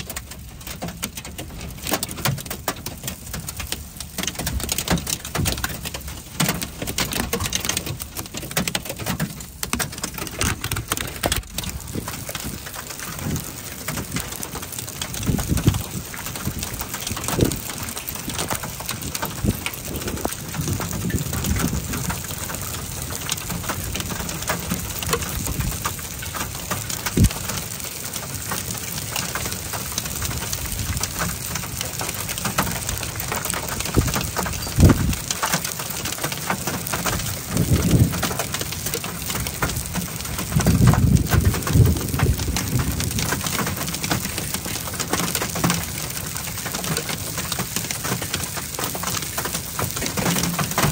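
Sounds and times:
heavy rain: 0.0s - 50.9s
thunder rumbles: 8.6s - 35.4s, 36.8s - 46.0s.

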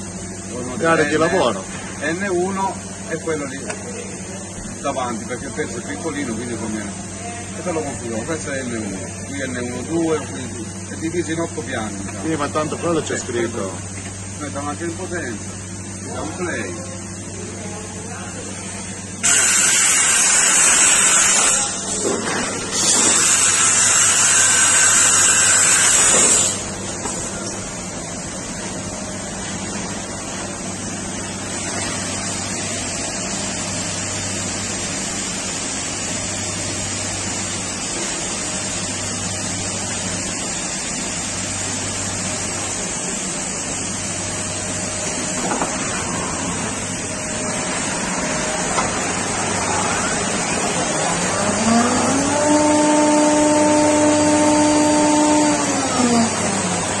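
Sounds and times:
machine hiss and hum: 0.0s - 57.0s
spindle whine: 41.8s - 57.0s.

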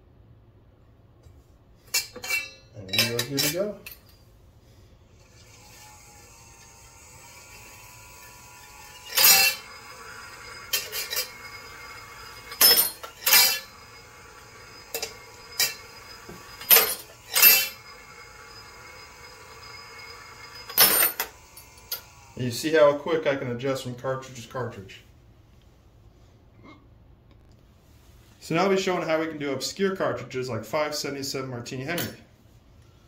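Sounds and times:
faint motor hum: 0.8s - 25.8s.

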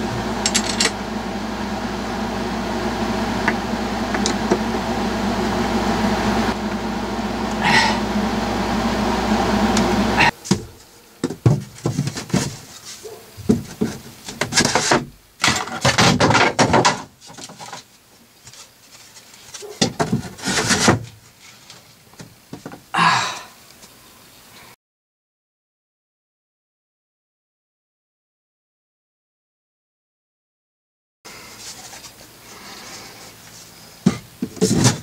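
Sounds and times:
machine hum: 0.0s - 11.3s
hand tools and hardware rattling: 0.4s - 1.0s.

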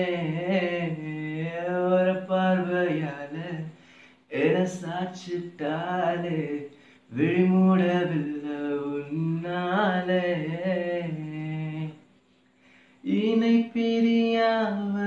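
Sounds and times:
man singing unaccompanied: 0.0s - 12.0s, 13.0s - 15.0s
quick breath: 3.7s - 4.3s, 6.7s - 7.1s, 12.4s - 13.0s.

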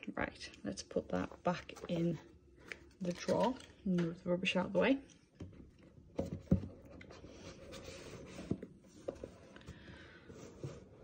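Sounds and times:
cardboard scraping and rustling: 6.2s - 11.0s.

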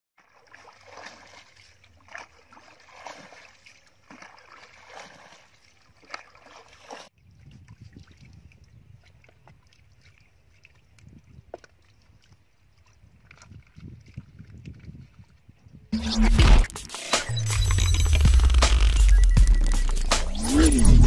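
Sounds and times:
water splashing from bucket: 0.2s - 7.1s
low rumble: 16.0s - 21.0s.

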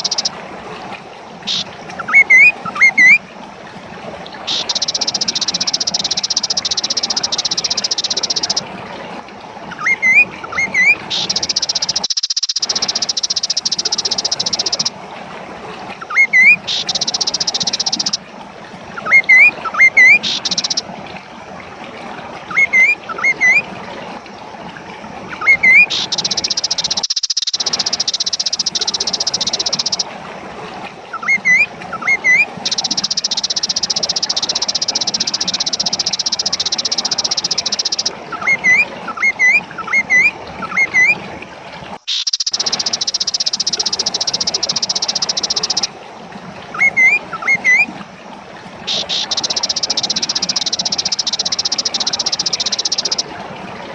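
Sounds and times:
bird calling in rising notes: 1.5s - 3.2s, 9.7s - 14.9s, 16.0s - 18.2s, 19.0s - 20.8s, 25.4s - 30.0s, 42.0s - 45.9s, 46.7s - 47.9s, 48.9s - 53.2s.

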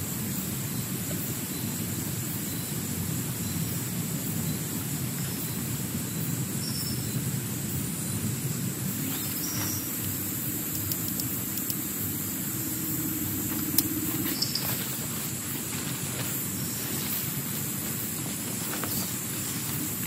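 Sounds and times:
faint low hum: 6.7s - 20.0s
heavy rain drumming on tent: 8.4s - 20.0s.

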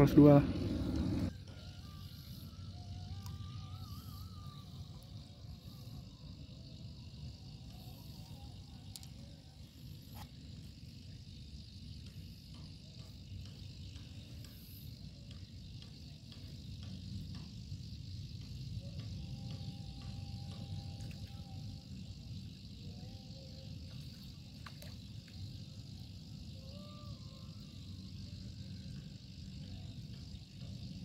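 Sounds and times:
low rumble: 0.0s - 1.3s
high hiss: 0.0s - 6.8s
faint ticks: 3.1s - 3.4s, 7.5s - 25.8s.

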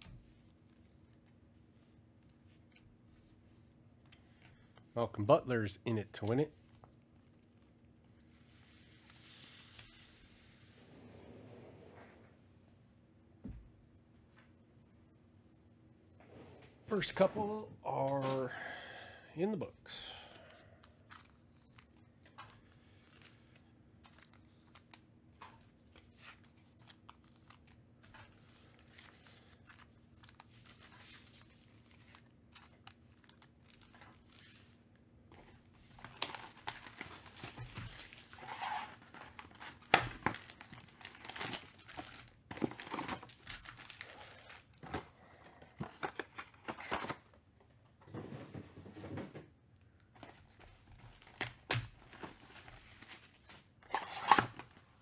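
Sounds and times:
cardboard and foil packs handled: 20.0s - 47.4s, 50.0s - 55.0s
plastic wrap crinkling and tearing: 21.1s - 34.8s, 35.6s - 44.9s, 50.3s - 54.8s.

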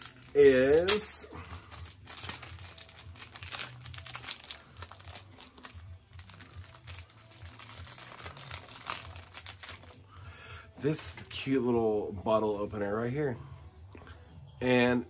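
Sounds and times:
paper wrapping crinkling: 0.0s - 10.2s.

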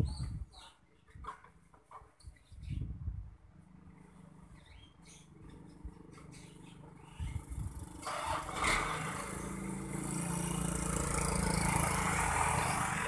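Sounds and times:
motorcycle passing: 3.4s - 13.0s.

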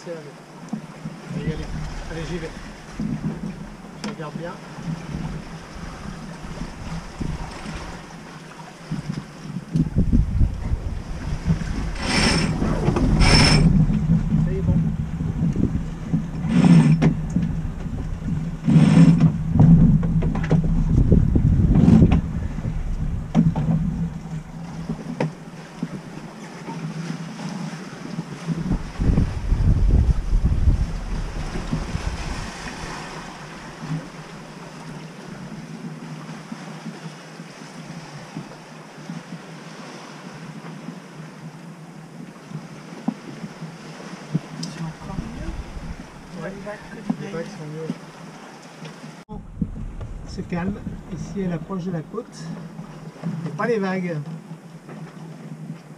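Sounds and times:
water rushing: 0.0s - 38.8s, 43.7s - 54.2s
wind low rumble: 1.1s - 26.5s, 28.0s - 35.9s, 44.3s - 47.2s, 49.2s - 53.3s.

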